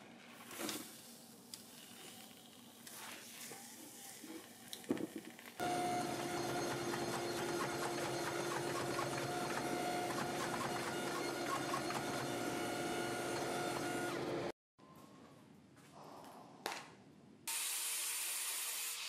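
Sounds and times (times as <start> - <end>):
forge blower and burner hum: 5.6 - 14.5.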